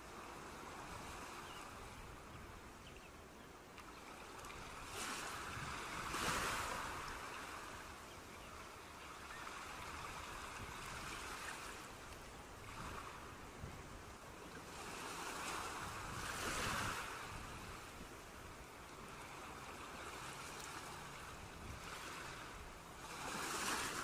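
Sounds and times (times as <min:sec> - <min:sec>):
ocean waves washing on beach: 0:00.0 - 0:24.0.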